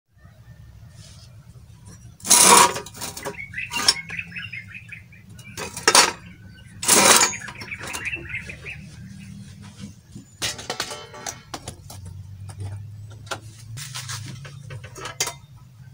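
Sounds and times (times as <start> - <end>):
birds chirping: 0.2 - 15.9
metal parts clattering: 1.8 - 4.2, 5.3 - 8.4, 10.4 - 15.6.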